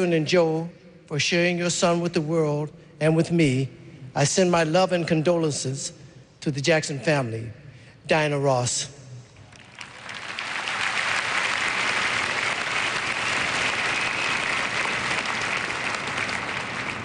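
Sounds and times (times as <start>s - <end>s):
large audience applauding: 9.5s - 17.0s.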